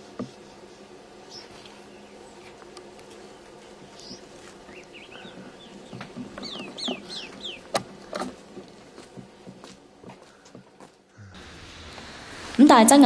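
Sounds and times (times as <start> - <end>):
bird chirping: 1.3 - 2.3, 3.3 - 8.3.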